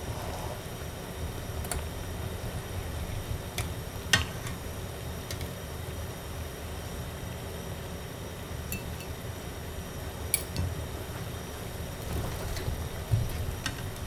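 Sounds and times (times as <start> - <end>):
steady low rumble: 0.0 - 5.3.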